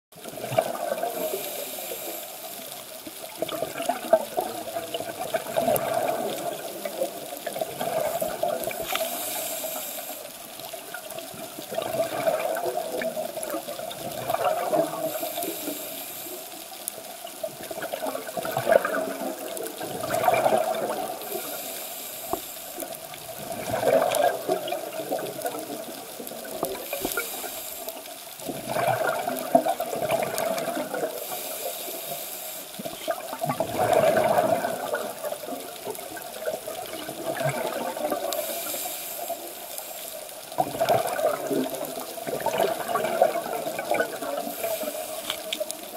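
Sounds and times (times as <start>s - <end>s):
exhale bubbling gurgles: 0.2s - 45.9s
regulator inhale hiss: 1.0s - 3.3s, 8.6s - 11.0s, 15.0s - 17.0s, 21.2s - 23.0s, 26.8s - 28.2s, 31.1s - 33.1s, 38.3s - 40.4s, 44.4s - 45.6s.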